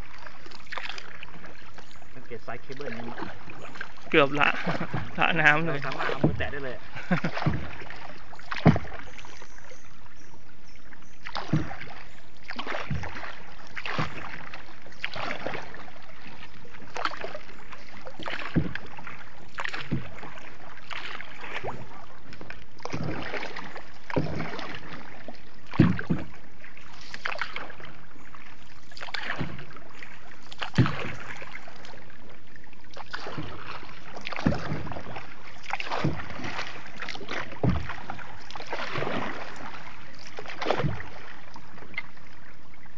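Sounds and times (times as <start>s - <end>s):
paddle strokes splashing water: 0.0s - 42.9s
water swishing: 0.0s - 42.9s.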